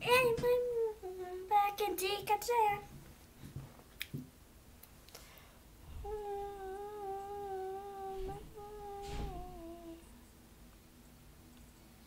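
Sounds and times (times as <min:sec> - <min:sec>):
girl humming: 0:00.0 - 0:01.8, 0:05.9 - 0:10.1.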